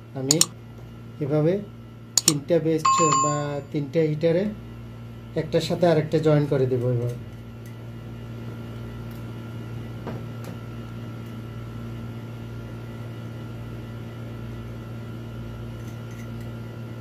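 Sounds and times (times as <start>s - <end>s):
low electrical hum: 0.0s - 17.0s
small metal parts clicking: 0.3s - 0.5s.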